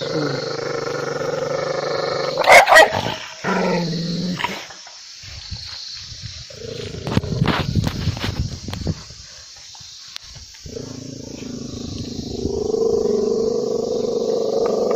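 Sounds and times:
dog barking: 2.4s - 3.1s.

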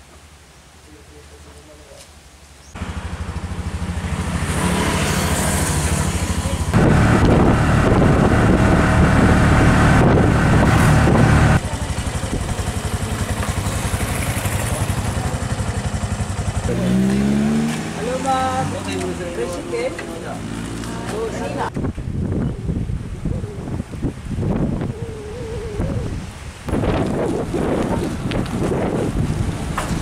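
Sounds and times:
motorcycle engine running: 2.8s - 19.4s.

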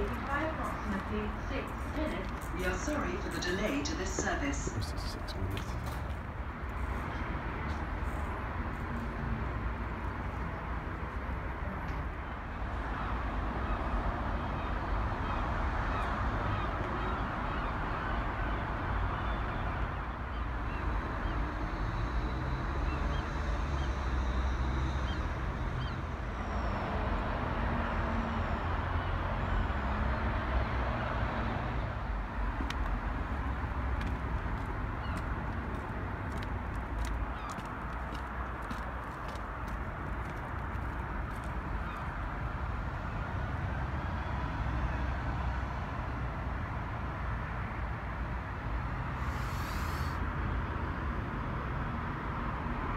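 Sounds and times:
hiss: 49.2s - 50.2s.

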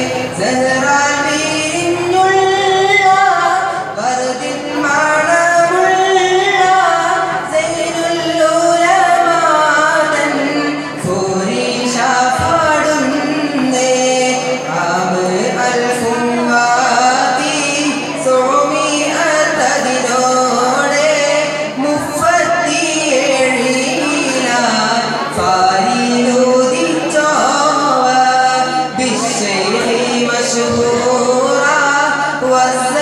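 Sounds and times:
boy singing devotional song: 0.0s - 33.0s.

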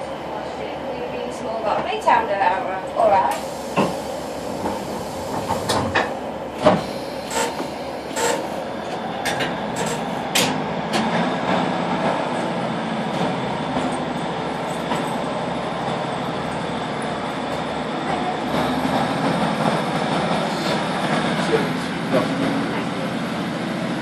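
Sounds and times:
train diesel engine rumble: 0.0s - 24.0s.

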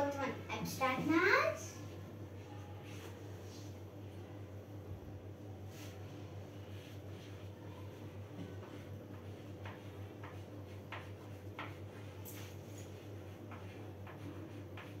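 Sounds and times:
chalk tapping and scratching on blackboard: 5.7s - 15.0s.

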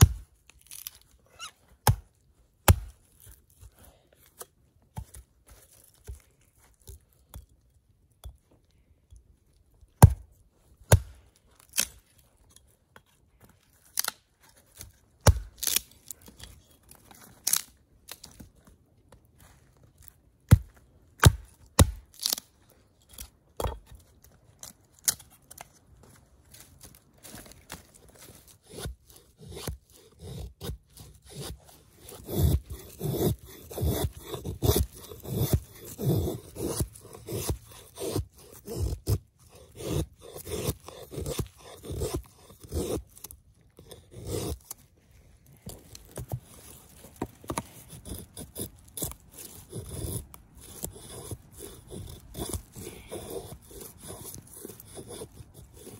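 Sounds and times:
stick scraping against axe blade: 11.6s - 18.4s, 26.6s - 44.9s, 45.6s - 55.9s.

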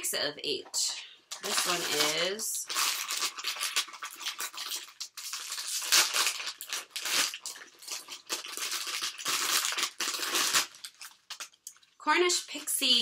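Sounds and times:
foil wrapper crinkling and tearing: 1.3s - 11.6s.

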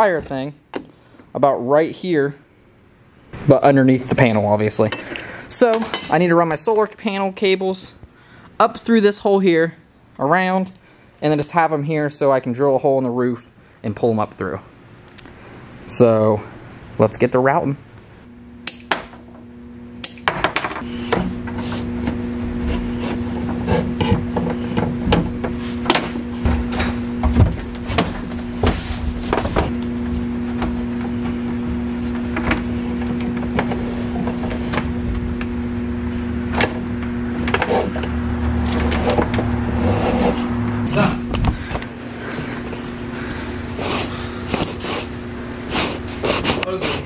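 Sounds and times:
steady low hum: 0.0s - 47.0s
cables and tools being handled: 37.4s - 47.0s.

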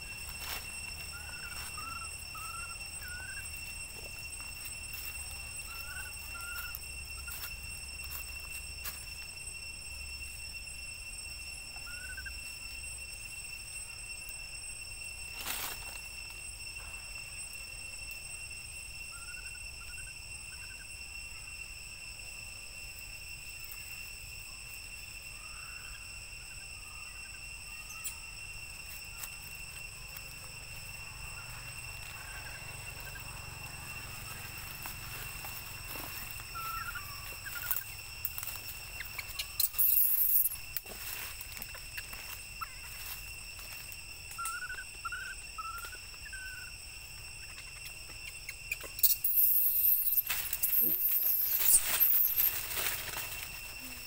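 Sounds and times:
high-pitched insect drone: 0.0s - 54.0s.

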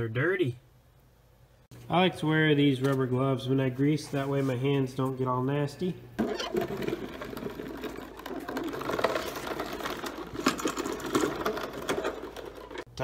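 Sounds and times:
creeper casters rattling on concrete: 6.2s - 13.0s.

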